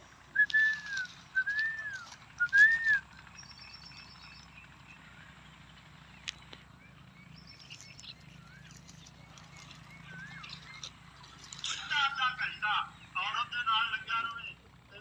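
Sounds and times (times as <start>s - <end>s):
person whistling short notes: 0.4s - 3.0s.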